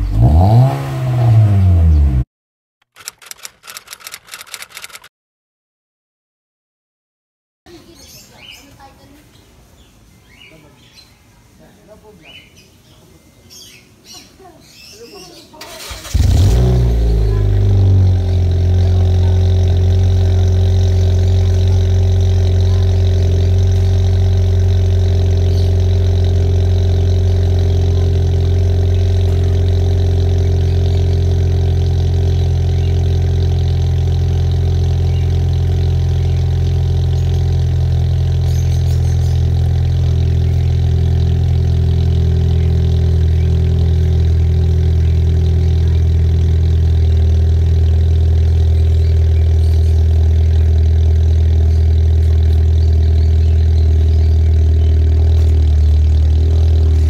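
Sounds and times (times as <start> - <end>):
car exhaust drone: 0.0 - 2.2, 16.0 - 57.0.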